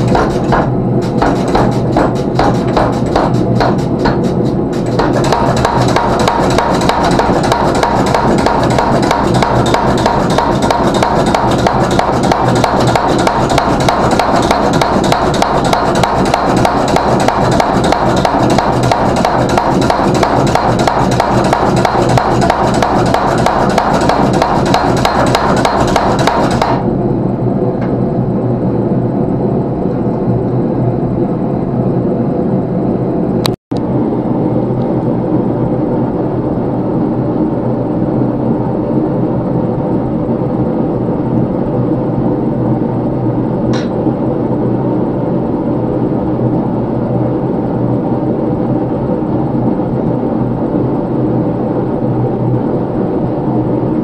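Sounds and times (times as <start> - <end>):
power hammer striking metal: 0.0 - 26.8
machine running noise: 0.0 - 54.0.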